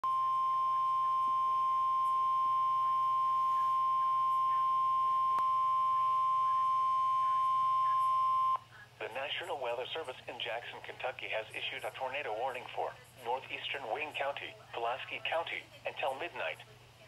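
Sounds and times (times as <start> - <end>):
steady alarm beep: 0.0 - 8.6.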